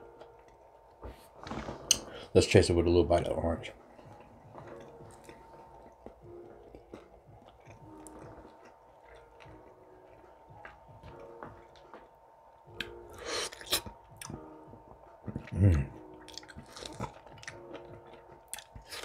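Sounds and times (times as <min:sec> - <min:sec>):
chewing orange: 0:03.9 - 0:12.1, 0:12.7 - 0:14.5, 0:15.2 - 0:19.0.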